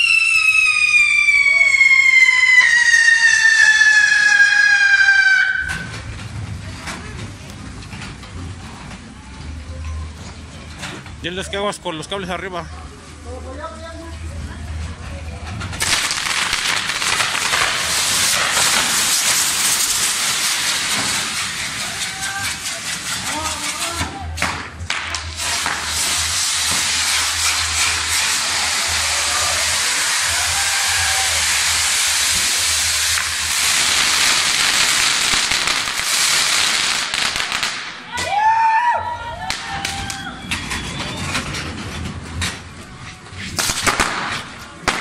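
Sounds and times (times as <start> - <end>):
fireworks hissing and crackling: 0.0 - 8.2, 15.6 - 45.0.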